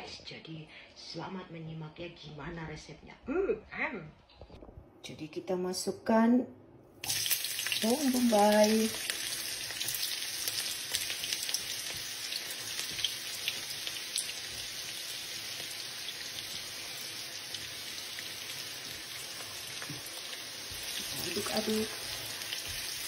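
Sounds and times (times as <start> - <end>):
onions sizzling in hot oil: 7.0 - 23.0.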